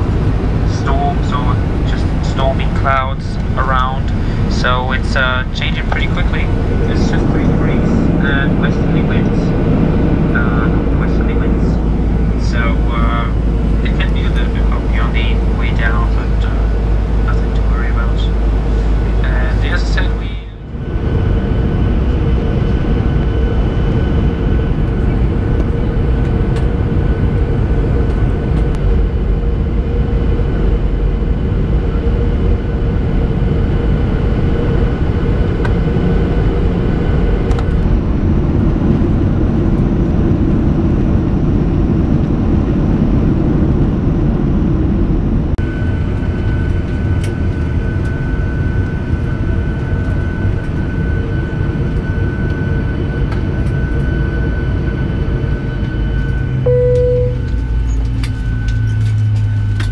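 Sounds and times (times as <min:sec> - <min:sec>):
engine whine: 0:00.0 - 0:59.9
jet engine and airflow rumble: 0:00.0 - 0:59.9.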